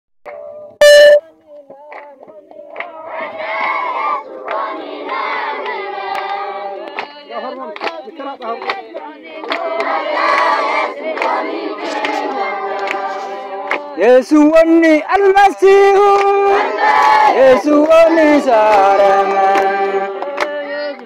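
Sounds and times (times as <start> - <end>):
group of people singing: 0.3 - 21.0
hand claps: 1.5 - 3.0, 4.4 - 14.0, 15.2 - 16.3, 17.7 - 21.0.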